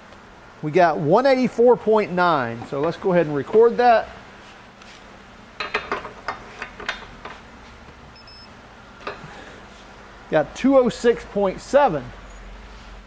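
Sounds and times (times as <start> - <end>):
short high electronic beep: 8.2 - 8.5.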